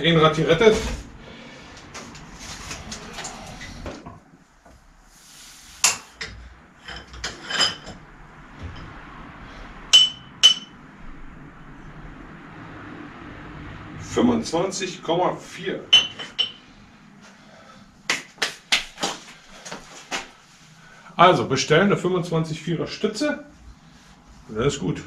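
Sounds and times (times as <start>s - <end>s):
sharp metallic clinks: 10.0s - 10.8s.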